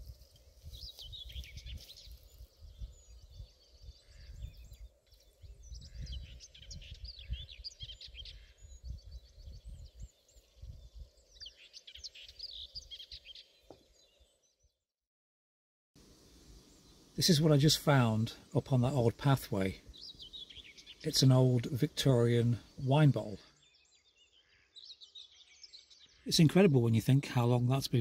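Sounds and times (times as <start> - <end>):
wind rumble on microphone: 0.0 - 11.4
songbirds chirping and trilling: 0.0 - 14.8, 16.0 - 28.0.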